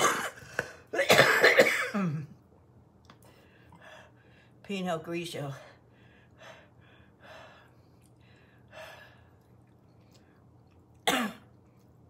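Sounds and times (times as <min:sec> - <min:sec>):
woman breathing hard: 0:05.8 - 0:09.4.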